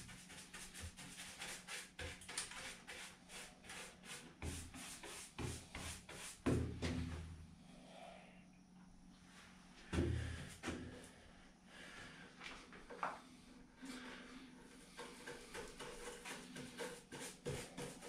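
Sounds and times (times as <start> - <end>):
paintbrush scrubbing wood: 0.0 - 6.6, 14.9 - 18.0.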